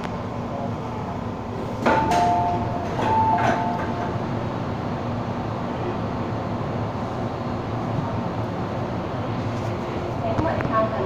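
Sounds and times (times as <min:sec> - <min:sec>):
standing train hum: 0:00.0 - 0:11.0
train door clunk: 0:01.6 - 0:04.5.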